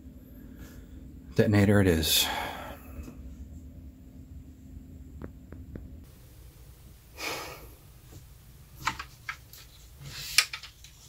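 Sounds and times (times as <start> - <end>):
low hum: 0.0 - 8.6
person breathing: 0.2 - 1.2, 2.2 - 3.4, 7.1 - 7.9.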